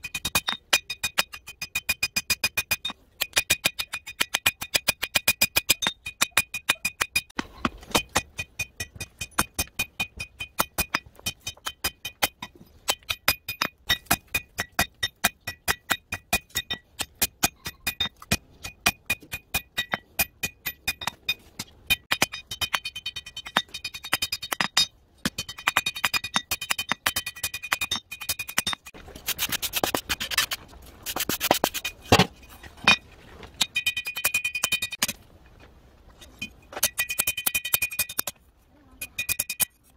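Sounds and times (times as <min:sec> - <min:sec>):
rough scraping noise: 0:28.9 - 0:33.6.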